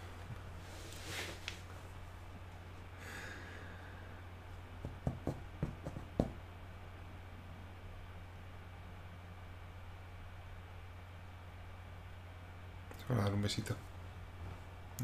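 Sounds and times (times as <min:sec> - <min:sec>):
steady low hum: 0:00.0 - 0:15.0
person breathing or sighing: 0:03.0 - 0:04.2.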